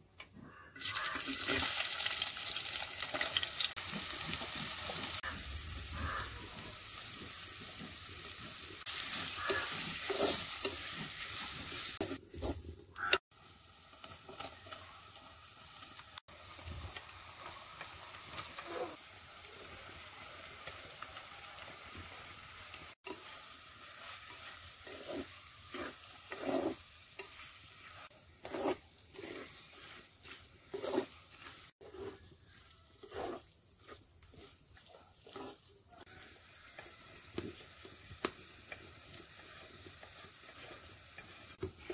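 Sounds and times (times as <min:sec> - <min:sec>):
vegetables sizzling in a pot: 0:00.8 - 0:41.9
metal ladle scraping a pot: 0:24.0 - 0:34.5.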